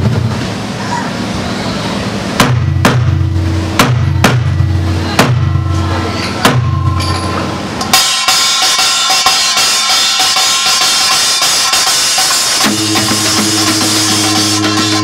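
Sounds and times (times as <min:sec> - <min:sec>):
deep low ringing strike: 0:02.4 - 0:08.0, 0:12.6 - 0:15.0
small gong struck rapidly: 0:02.4 - 0:15.0.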